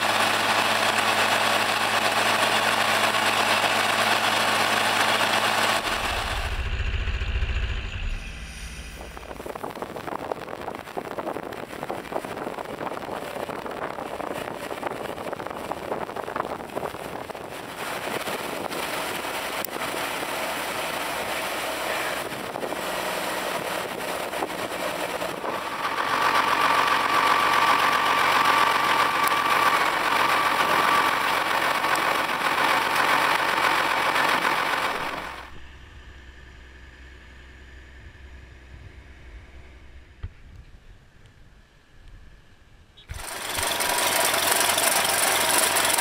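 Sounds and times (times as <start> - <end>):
tractor engine hum: 0.0 - 46.0.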